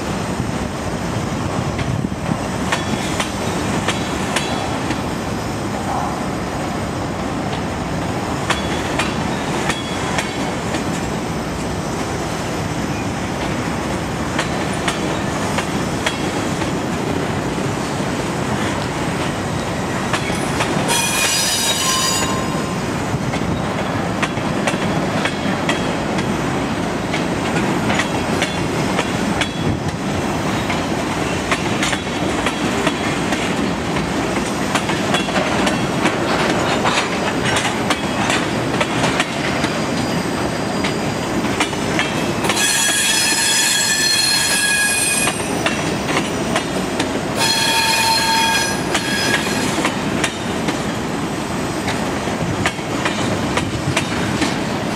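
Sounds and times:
train wheels rumbling on rails: 0.0 - 54.9
high-pitched wheel squeal: 20.9 - 22.6, 42.6 - 45.8, 47.4 - 49.8
wheels clicking over rail joints: 23.3 - 40.2, 40.8 - 43.7, 44.4 - 51.1, 51.8 - 54.9.

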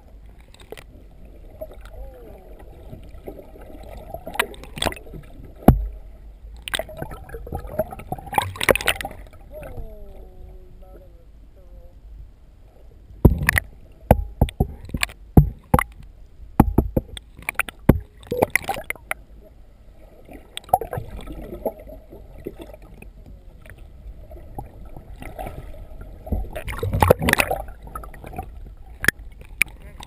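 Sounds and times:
water gurgling and sloshing: 0.0 - 30.0
knocks against underwater camera: 5.6 - 5.9, 13.2 - 15.9, 16.6 - 17.2.

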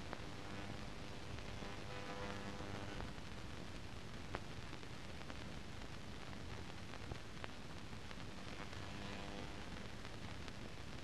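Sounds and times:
faint clicks and crackle: 0.0 - 11.0
faint hum: 0.0 - 11.0
steady hiss: 0.0 - 11.0.

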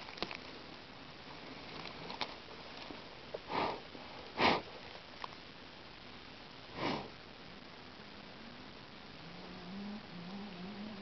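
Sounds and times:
person sniffing: 3.5 - 3.8, 4.4 - 4.7, 6.8 - 7.1.

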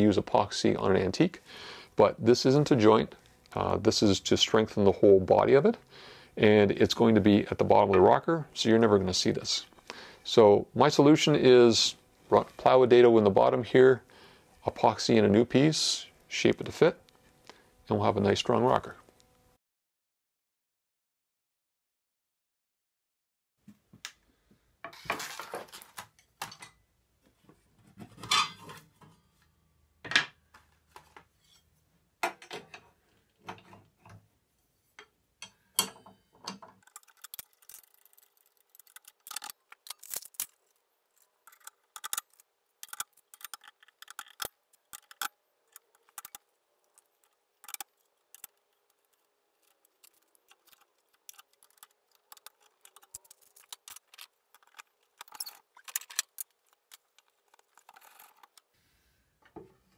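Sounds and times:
saw blades and wrench clinking: 35.4 - 37.4.

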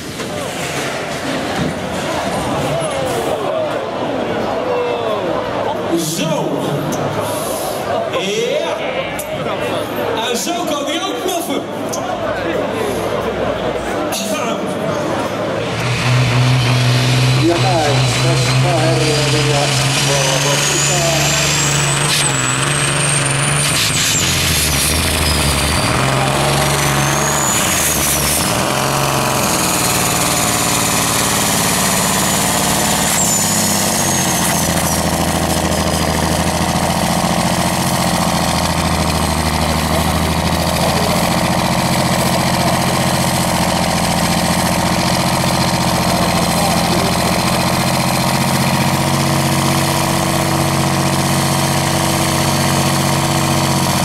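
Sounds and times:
diesel engine running loudly: 11.8 - 54.0.

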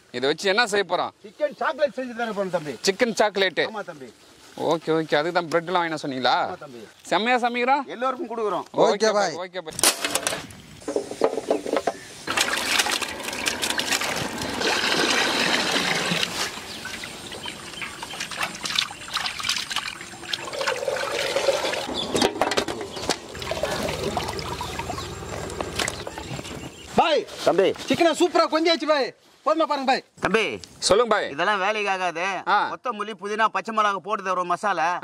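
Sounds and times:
water pouring and sloshing: 12.2 - 26.6
knocks and clatter: 21.9 - 23.4.

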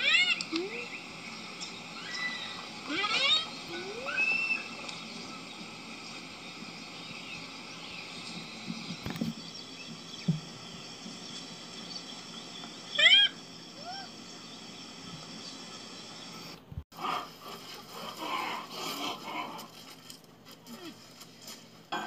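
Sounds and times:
rhinoceros squealing call: 2.0 - 4.9.

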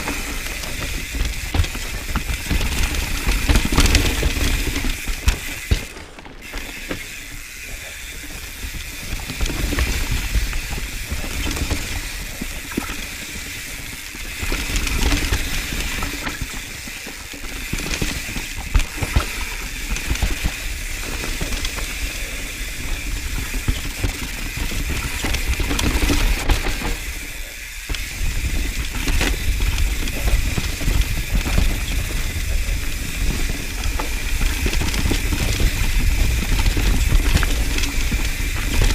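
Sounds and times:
bike rattling over bumps: 0.0 - 38.9
bike tyres rolling over dirt: 0.0 - 38.9.

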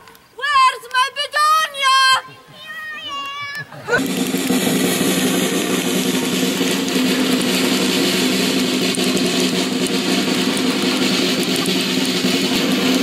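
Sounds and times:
drums: 3.6 - 13.0
live band held chord: 4.0 - 13.0.

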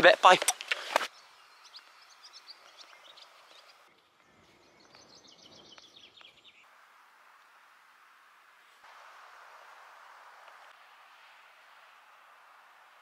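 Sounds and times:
small birds chirping: 0.3 - 6.7
soft steady hiss: 5.8 - 13.0.

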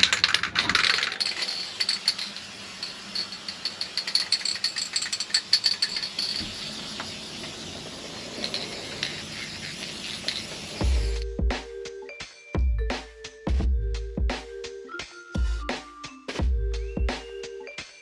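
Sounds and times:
spray can rattling: 0.0 - 11.2.

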